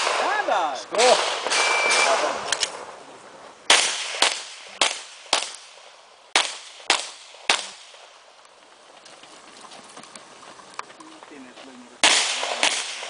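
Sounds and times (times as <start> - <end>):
handgun shots echoing: 12.0 - 13.0.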